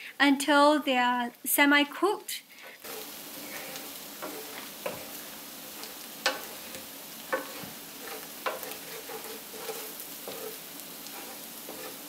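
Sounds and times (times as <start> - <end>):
eggs sizzling in a pan: 0.0 - 12.0
wooden spatula stirring: 2.7 - 12.0.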